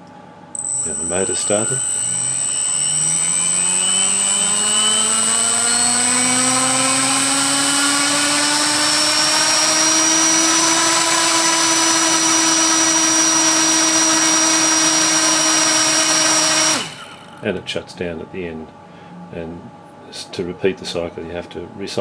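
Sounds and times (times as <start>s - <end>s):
electric motor whine: 0.6s - 17.5s.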